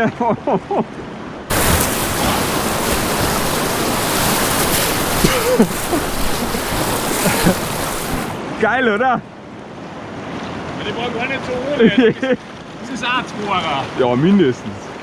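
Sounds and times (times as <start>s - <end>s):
whitewater rushing and splashing: 1.5s - 8.8s.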